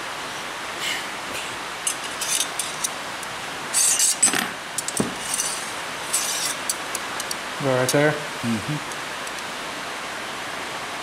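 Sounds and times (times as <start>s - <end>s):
steady background hiss: 0.0s - 11.0s
metal tubing being bent: 1.9s - 3.0s, 3.7s - 8.0s.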